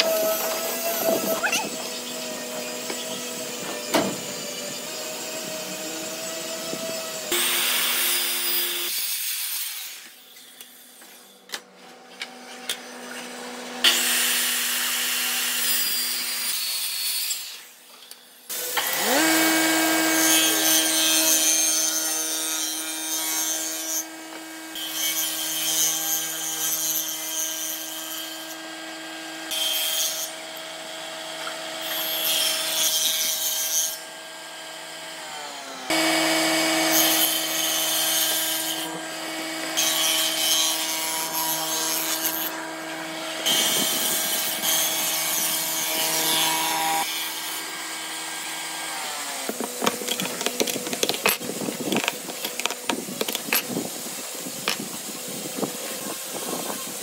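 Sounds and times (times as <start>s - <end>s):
jointer motor whine: 0.0s - 8.9s, 18.5s - 22.4s, 34.1s - 53.9s
jointer cutting boards: 0.0s - 9.1s, 18.5s - 57.0s
circular saw cutting wood: 0.0s - 11.5s, 12.1s - 57.0s.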